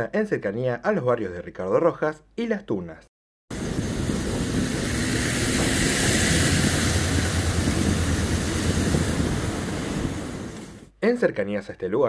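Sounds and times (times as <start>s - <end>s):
train wheels rumbling on rails: 3.5s - 10.9s.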